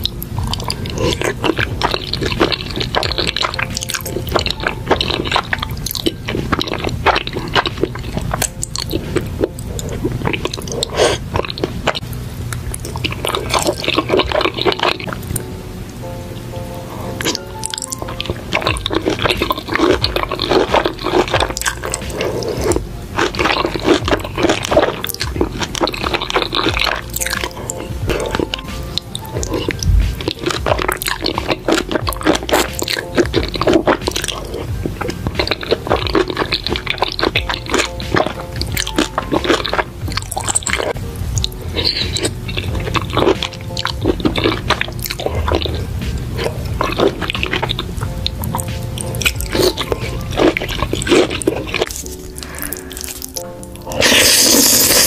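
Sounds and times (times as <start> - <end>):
chewing: 0.0 - 15.5, 16.9 - 55.0
background music: 0.0 - 55.0
wet slurping of noodles: 49.5 - 55.0.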